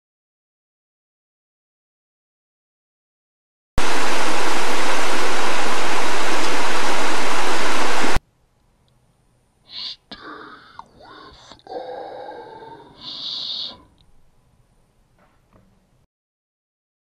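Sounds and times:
loud static hiss: 0:03.8 - 0:11.7, 0:12.9 - 0:15.2.

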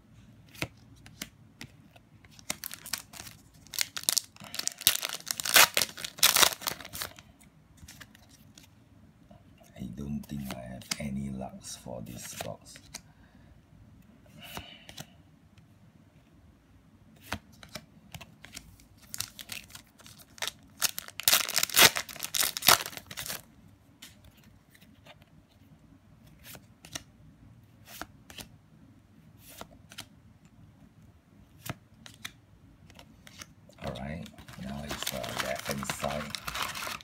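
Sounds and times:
wrapper crinkling and tearing: 0:02.4 - 0:07.2, 0:19.0 - 0:23.5, 0:33.9 - 0:37.0.

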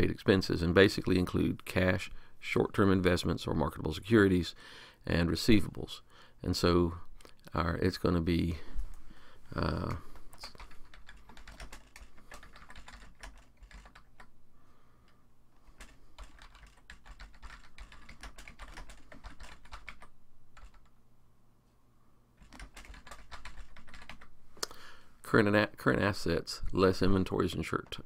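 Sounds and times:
typing on computer keyboard: 0:10.3 - 0:14.3, 0:15.8 - 0:20.9, 0:22.4 - 0:24.3.

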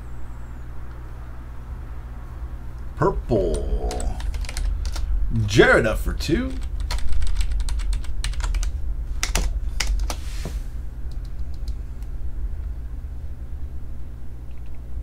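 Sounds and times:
steady low hum: 0:00.0 - 0:15.0
keyboard keys clicking: 0:03.5 - 0:05.1, 0:06.6 - 0:10.2.

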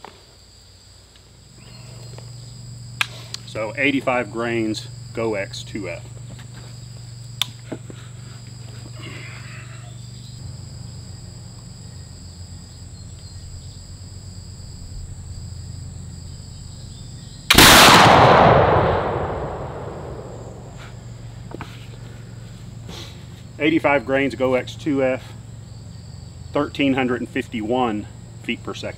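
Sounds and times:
crickets chirring: 0:00.0 - 0:28.9
gunshot: 0:17.5 - 0:21.0.

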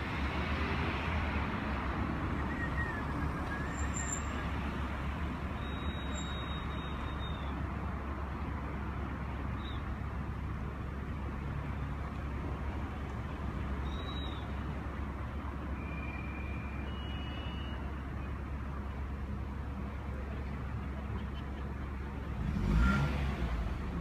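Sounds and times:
diesel engines idling: 0:01.4 - 0:24.0
short steady whistles: 0:05.6 - 0:07.5, 0:13.8 - 0:14.5, 0:15.8 - 0:17.9.

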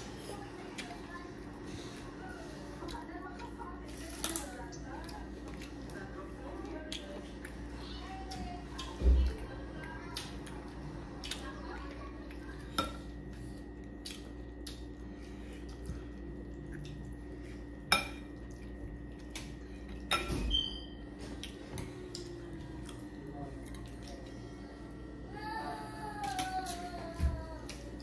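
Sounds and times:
spoons clinking on plates: 0:20.0 - 0:20.9.

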